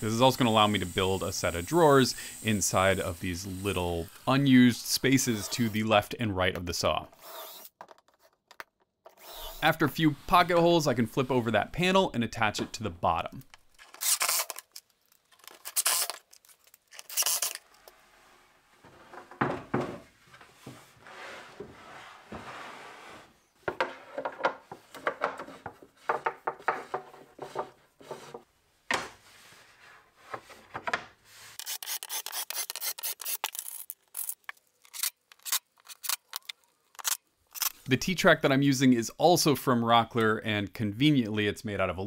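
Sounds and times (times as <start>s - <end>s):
scrapes and knocks on plywood: 18.8s - 31.1s.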